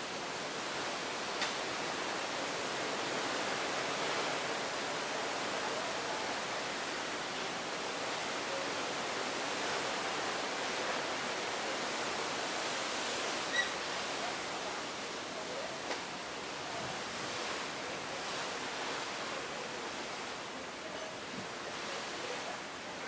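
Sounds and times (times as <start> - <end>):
seawater rushing past hull: 0.1 - 23.0
short high squeak: 13.5 - 13.8
faint click: 15.9 - 16.1.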